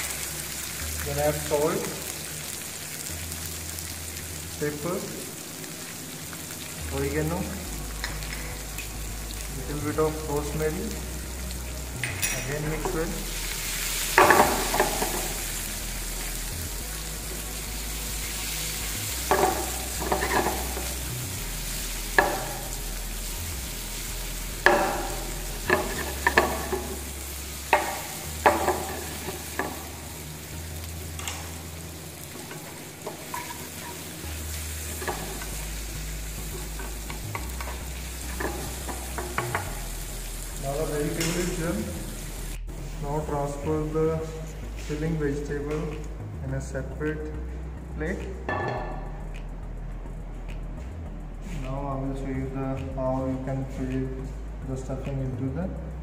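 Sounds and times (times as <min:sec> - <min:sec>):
vegetables sizzling in oil: 0:00.0 - 0:42.7
spatula knocking and scraping pan: 0:19.3 - 0:20.8, 0:24.6 - 0:27.0, 0:27.7 - 0:29.9.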